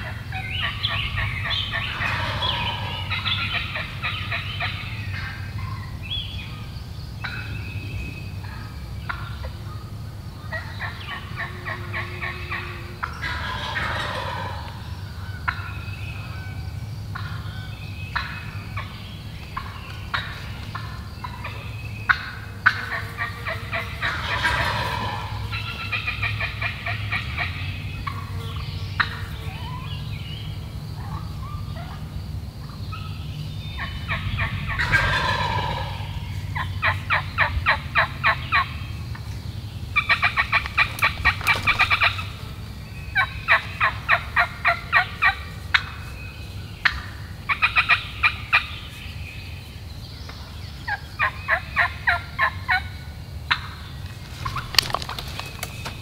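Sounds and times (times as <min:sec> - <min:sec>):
turkey gobbling: 0:00.0 - 0:06.0, 0:08.4 - 0:09.8, 0:10.4 - 0:16.4, 0:17.1 - 0:30.0, 0:33.8 - 0:38.7, 0:40.0 - 0:42.6, 0:43.2 - 0:46.1, 0:46.8 - 0:48.8, 0:50.9 - 0:56.0
hen turkey yelps: 0:00.3 - 0:05.8, 0:10.5 - 0:14.8, 0:22.1 - 0:28.2, 0:34.1 - 0:38.7, 0:40.0 - 0:42.4.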